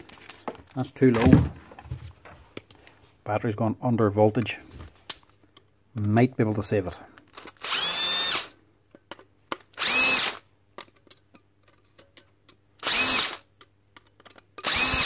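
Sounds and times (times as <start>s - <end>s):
cordless drill bursts: 7.4s - 8.5s, 9.8s - 10.4s, 12.8s - 13.4s, 14.6s - 15.0s.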